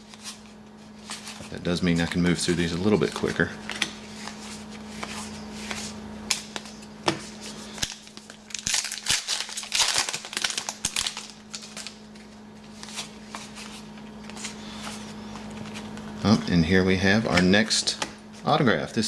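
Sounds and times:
cards shuffling with clicks: 0.0 - 16.1
foil wrapper crinkling: 7.7 - 14.8.

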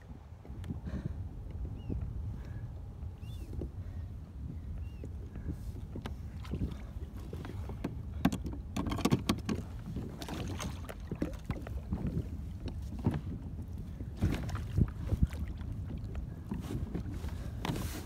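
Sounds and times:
wind rumbling on microphone: 0.0 - 18.0
water slapping against kayak: 4.8 - 18.0
knocks and splashes: 6.0 - 13.4, 14.2 - 17.9.

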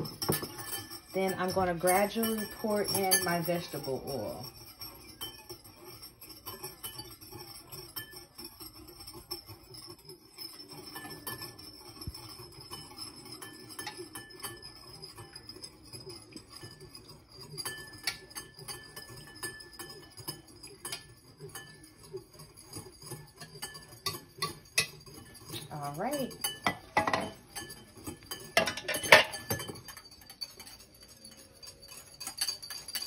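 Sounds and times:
wire whisk clinking in a bowl: 0.0 - 33.0.

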